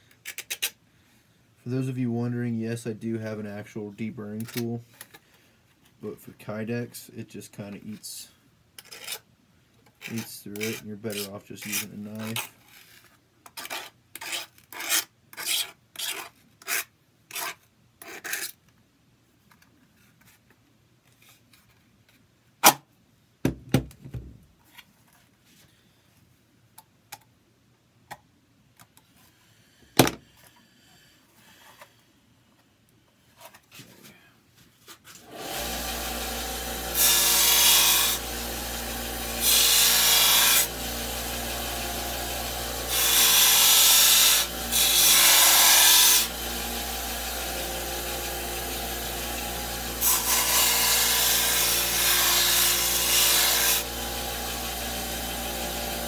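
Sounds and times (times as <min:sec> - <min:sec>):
knife blade scraping plastic: 0:00.0 - 0:00.8, 0:08.8 - 0:18.6.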